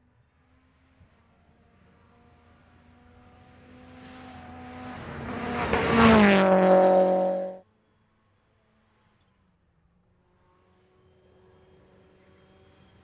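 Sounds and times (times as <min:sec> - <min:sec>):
rally car engine passing: 0:00.5 - 0:07.6.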